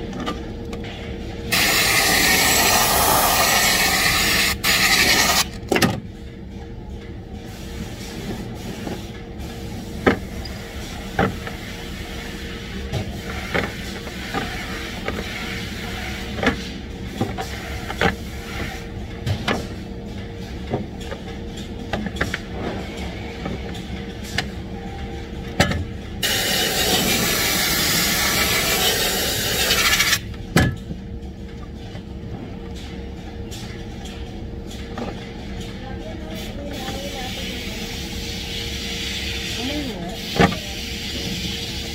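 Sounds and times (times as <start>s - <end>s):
steady machine hum: 0.0s - 41.9s
air blow gun hissing: 1.5s - 5.5s, 26.2s - 30.2s.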